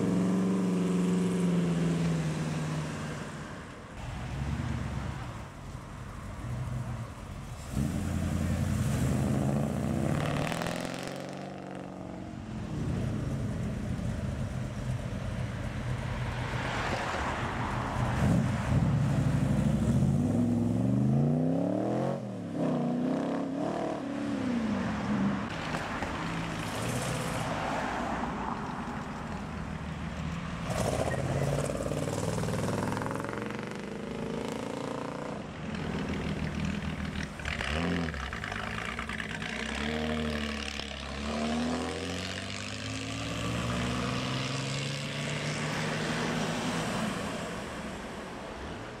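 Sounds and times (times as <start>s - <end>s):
cars accelerating away: 30.6s - 47.7s.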